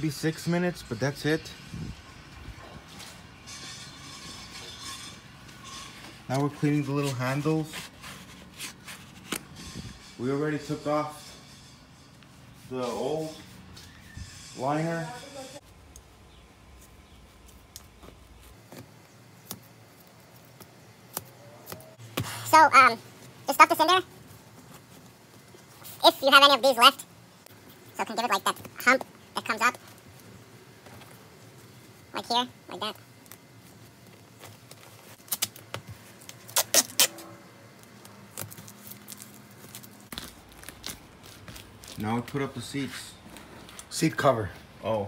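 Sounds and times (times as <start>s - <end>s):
foam rustling and tearing: 33.0s - 43.5s
duct tape ripping off roll: 35.1s - 37.3s.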